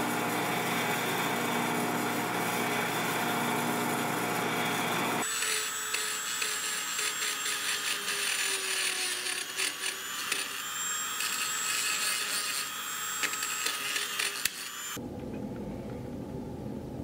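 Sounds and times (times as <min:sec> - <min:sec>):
rotary tool whining: 0:00.0 - 0:15.0
abrasive bit grinding metal: 0:05.2 - 0:15.0.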